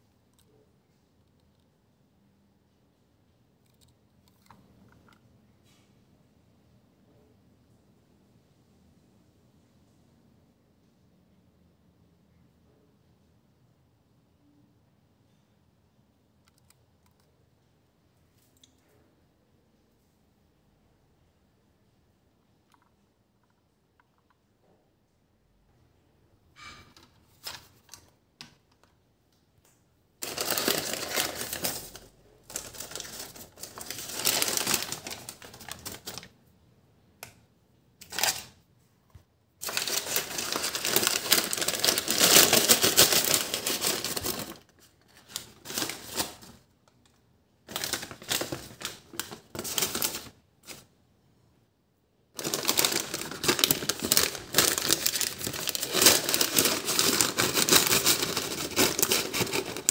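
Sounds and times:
paper bags rustling and crinkling: 0:30.2 - 0:36.3, 0:38.1 - 0:38.5, 0:39.6 - 0:46.6, 0:47.7 - 0:50.9, 0:52.4 - 0:59.9.

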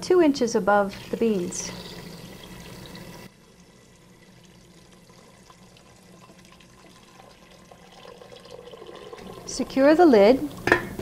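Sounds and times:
water trickling into a pot: 0:00.9 - 0:11.0.

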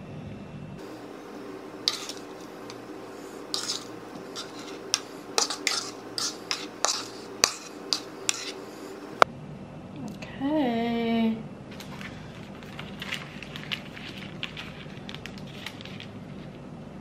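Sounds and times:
metal spoon scraping plastic bowl: 0:00.8 - 0:09.2.

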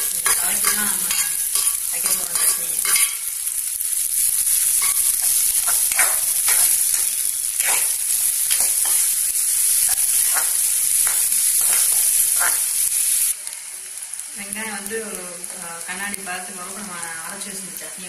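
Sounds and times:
metal spoon scraping pan: 0:00.0 - 0:03.3, 0:04.5 - 0:09.2
onions sizzling in hot oil: 0:00.0 - 0:18.0.

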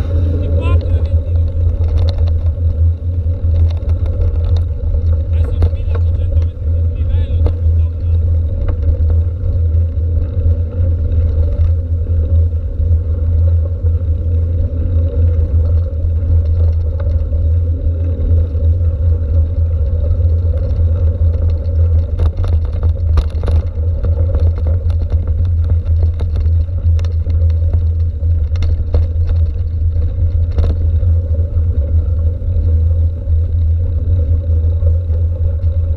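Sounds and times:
tyres on gravel: 0:00.0 - 0:35.9
wind and vibration rumble: 0:00.0 - 0:35.9.

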